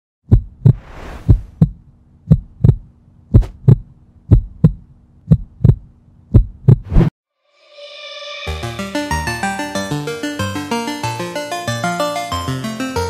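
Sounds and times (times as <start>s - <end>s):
steady low hum: 0.3s - 6.8s
heartbeat thumps: 0.3s - 7.0s
hissing swoosh: 0.8s - 1.5s.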